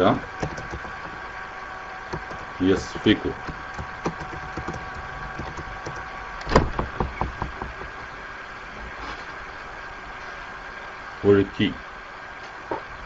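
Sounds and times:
microphone hiss and hum: 0:00.0 - 0:13.0
sharp clicks or knocks: 0:00.2 - 0:01.2, 0:02.1 - 0:08.2.

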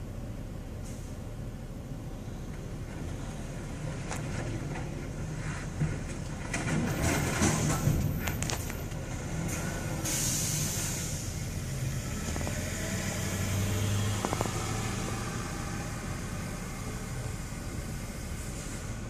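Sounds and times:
brief hiss: 0:10.0 - 0:11.4
car engine hum: 0:10.7 - 0:19.0
sharp clicks: 0:12.2 - 0:12.6, 0:14.2 - 0:14.6.

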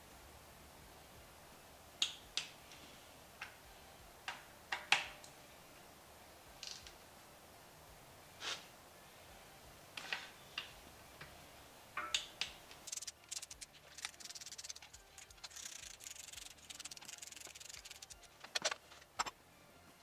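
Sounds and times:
hand ratchet clicking: 0:12.8 - 0:18.8.

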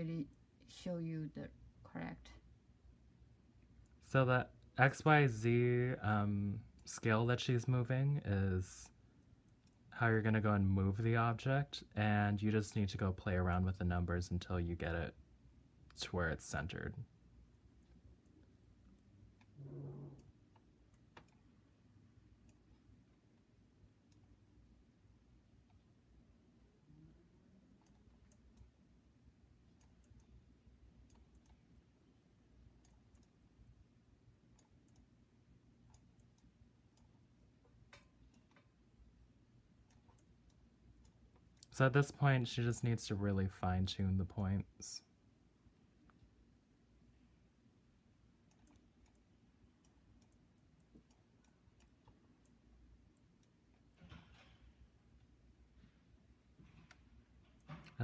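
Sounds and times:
low room hum: 0:00.0 - 0:58.0
computer mouse clicks: 0:18.9 - 0:21.5, 0:31.0 - 0:31.6, 0:32.8 - 0:33.4, 0:34.6 - 0:35.1, 0:39.8 - 0:41.8, 0:48.4 - 0:54.2.

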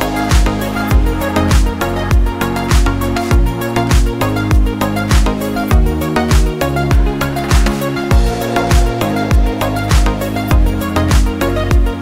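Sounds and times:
kick drum: 0:00.0 - 0:12.0
sustained chords: 0:07.0 - 0:12.0.

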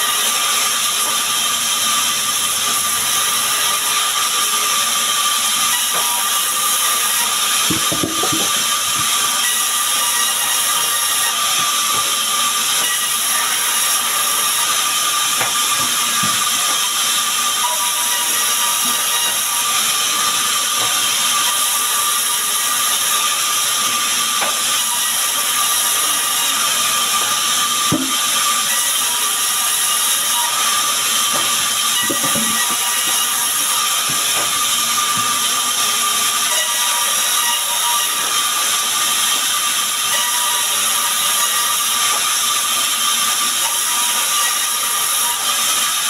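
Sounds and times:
band saw cutting logs: 0:00.0 - 0:46.0
timber knocks: 0:07.7 - 0:09.1, 0:27.9 - 0:28.2.

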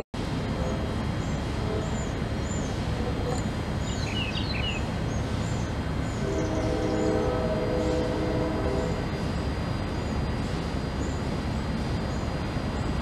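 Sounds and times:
small birds chirping: 0:03.4 - 0:06.6
distant horn chord: 0:06.2 - 0:09.0.

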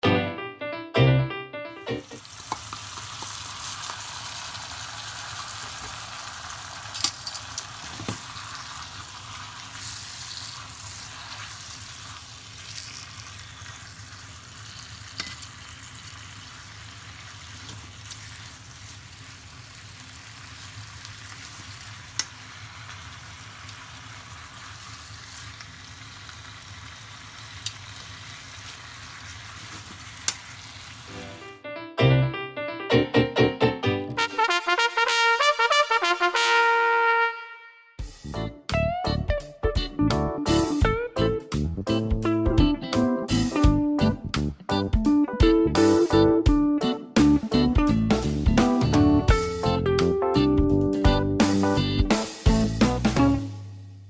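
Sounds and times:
meat sizzling in a frying pan: 0:02.0 - 0:31.5
tongs clicking on pan: 0:02.4 - 0:03.4, 0:15.0 - 0:15.6, 0:30.2 - 0:30.5.

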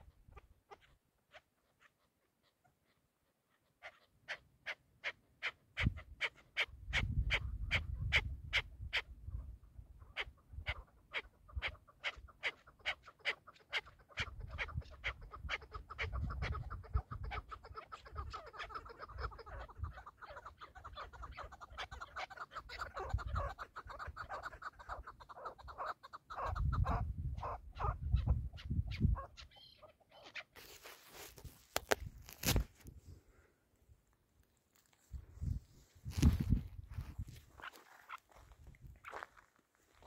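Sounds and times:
partridge calling sharp chucks: 0:03.8 - 0:09.2, 0:10.0 - 0:31.3.

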